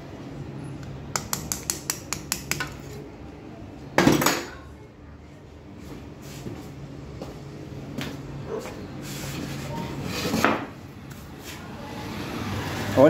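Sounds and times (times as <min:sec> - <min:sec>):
low steady hum: 0:00.0 - 0:06.2.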